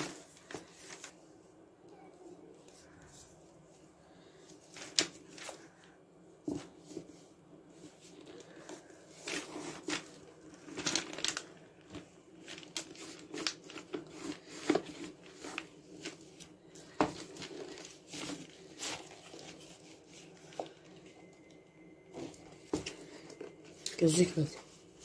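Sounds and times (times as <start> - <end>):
tape and paper rustling: 4.5 - 5.9, 7.8 - 25.0.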